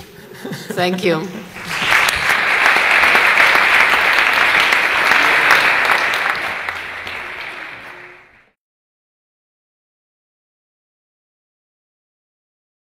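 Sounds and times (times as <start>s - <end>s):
audience applauding: 1.5s - 8.6s.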